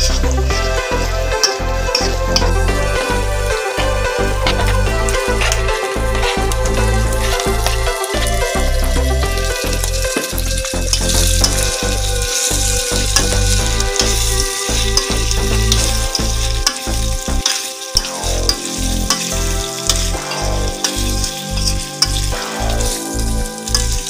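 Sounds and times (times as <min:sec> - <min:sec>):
meat sizzling in hot oil: 0:05.1 - 0:24.0
spatula scraping and clicking on wok: 0:09.8 - 0:23.0, 0:23.6 - 0:24.0.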